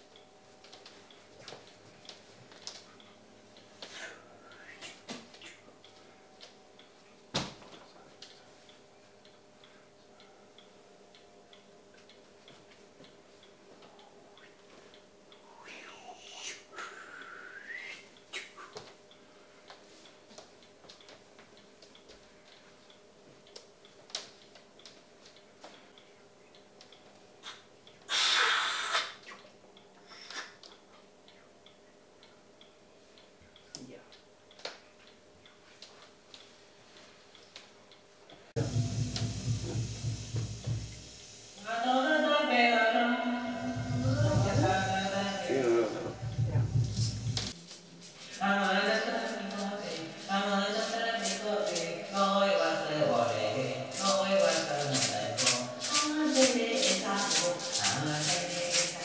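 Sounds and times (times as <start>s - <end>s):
low steady hum: 0.0s - 20.7s, 38.5s - 59.0s
faint regular ticking: 8.2s - 15.5s, 30.7s - 41.6s
person blowing air: 28.1s - 29.2s.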